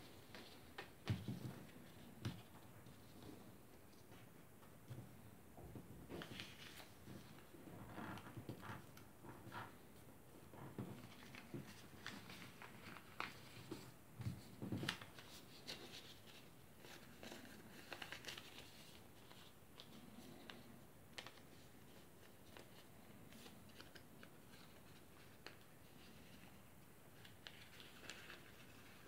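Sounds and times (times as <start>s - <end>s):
paper rustling and crinkling: 6.0s - 9.8s, 10.4s - 29.0s.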